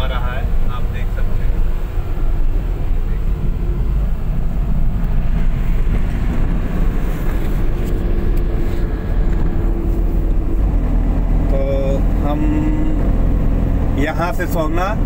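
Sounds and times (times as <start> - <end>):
vehicle engine and road noise: 0.0 - 15.0.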